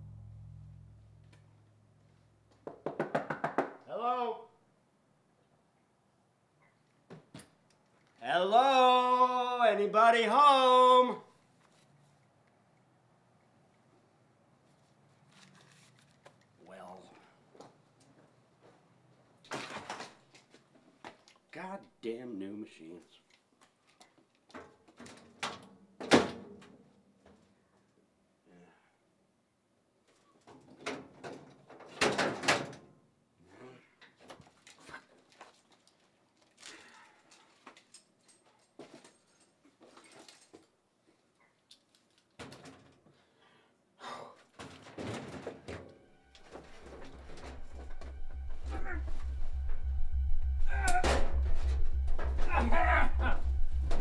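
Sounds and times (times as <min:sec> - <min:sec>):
rustling and scraping: 0:14.6 - 0:16.6, 0:44.5 - 0:54.0
faint footsteps: 0:46.1 - 0:54.0.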